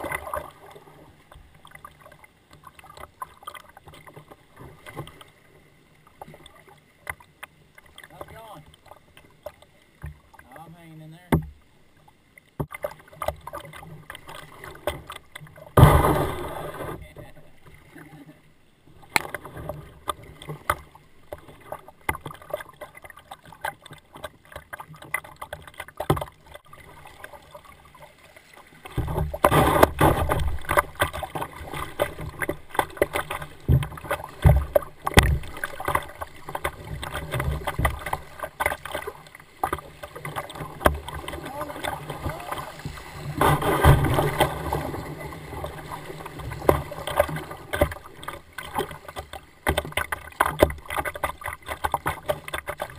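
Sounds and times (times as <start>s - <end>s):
paddle strokes in water: 0.0s - 52.9s
water splashing and gurgling: 0.0s - 52.9s
loud splash: 15.8s - 17.0s, 40.6s - 47.3s.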